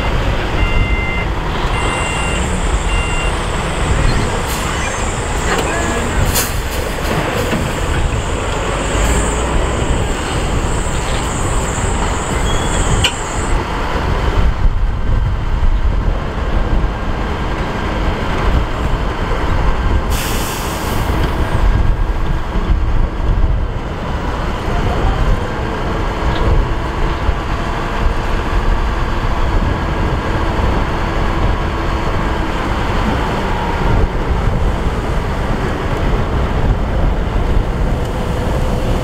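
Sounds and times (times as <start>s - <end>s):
truck engines rumbling: 0.0s - 39.0s
hiss burst: 20.1s - 21.1s.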